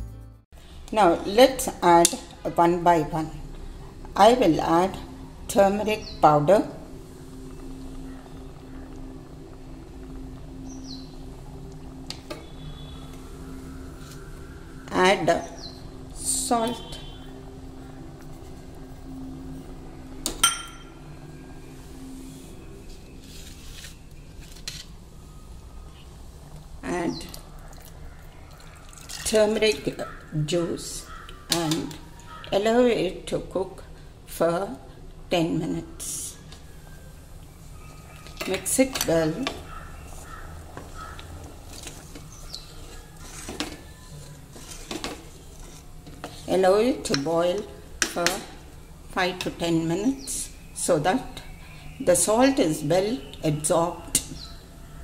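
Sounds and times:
steady low hum: 0.6s - 55.0s
spoon stirring thick food in pot: 39.4s - 48.4s.

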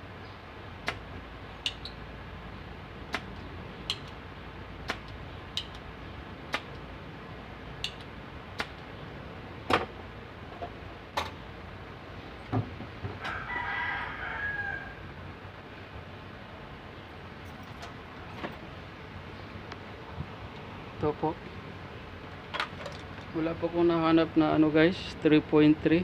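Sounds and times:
sharp clicks and taps: 0.8s - 1.0s, 3.1s - 4.2s, 4.8s - 5.9s, 7.8s - 8.8s
rooster crowing: 13.1s - 15.2s.

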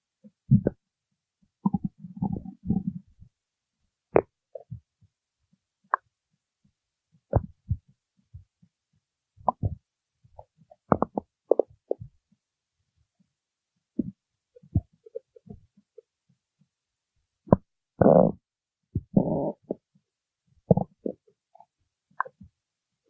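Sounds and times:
stomach growling: 1.6s - 3.2s, 10.8s - 12.1s, 17.5s - 18.4s, 19.0s - 19.8s, 20.7s - 22.5s.

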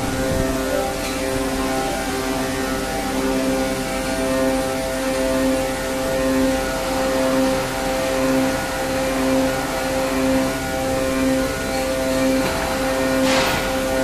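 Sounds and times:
injection moulding machine humming: 0.0s - 14.0s
machine whine: 0.0s - 14.0s.

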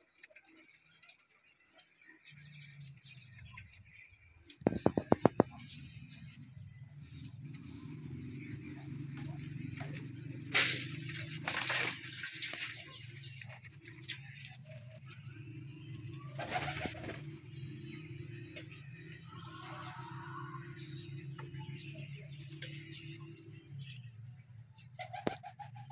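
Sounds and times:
pigeons cooing: 16.3s - 17.4s, 25.0s - 25.9s.

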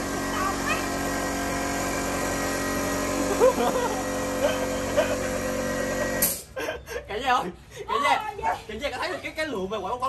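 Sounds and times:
air compressor humming: 0.0s - 6.6s.

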